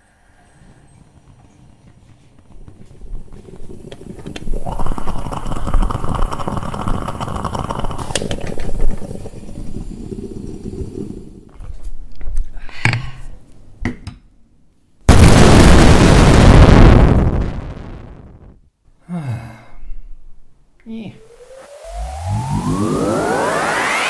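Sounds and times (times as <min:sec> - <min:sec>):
moka pot sputtering: 0:01.2 - 0:11.5.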